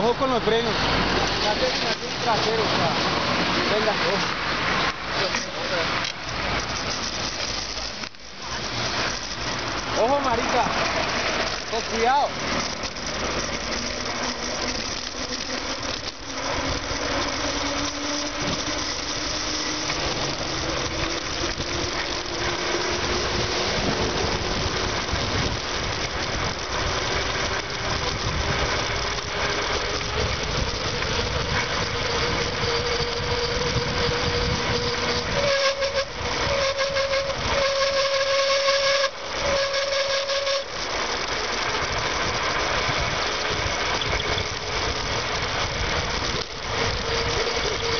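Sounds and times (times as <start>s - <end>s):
wind rushing over microphone: 15.8s - 38.1s.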